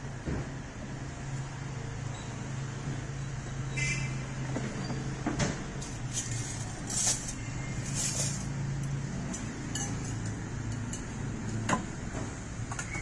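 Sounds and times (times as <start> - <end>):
tableware clinking: 9.4 - 11.1.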